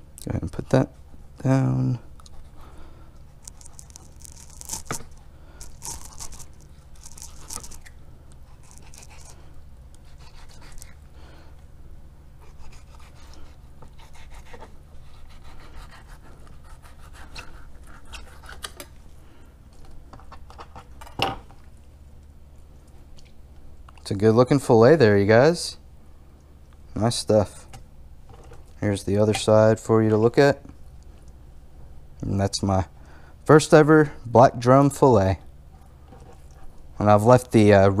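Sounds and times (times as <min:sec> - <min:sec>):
steady low hum: 0:00.0 - 0:38.0
knife slicing fish: 0:12.4 - 0:18.8
knife scraping cutting board: 0:12.4 - 0:18.9.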